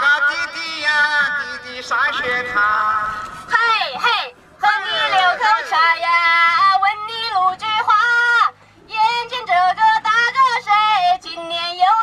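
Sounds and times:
woman singing through a megaphone: 0.0 - 12.0.

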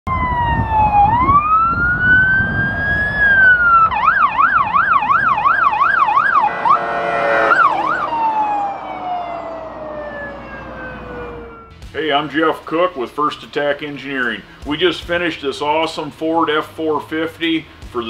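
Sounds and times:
electronic siren wailing and yelping: 0.1 - 11.8
horn-like blast: 5.3 - 11.8.

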